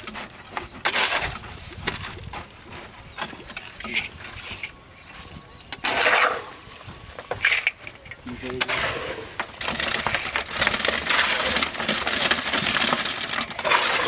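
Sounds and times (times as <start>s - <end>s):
hoe scraping concrete mix: 0.0s - 14.0s
concrete mix rushing into form: 8.5s - 14.0s.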